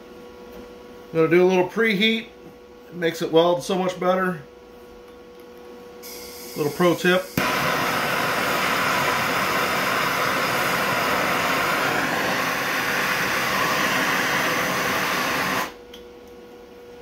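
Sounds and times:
gas torch hissing: 6.0 - 15.8.

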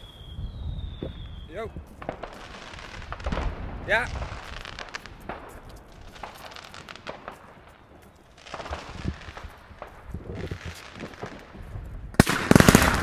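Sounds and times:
fireworks crackling and popping: 0.0 - 13.0
loud firework bangs: 2.0 - 7.6, 8.4 - 13.0.

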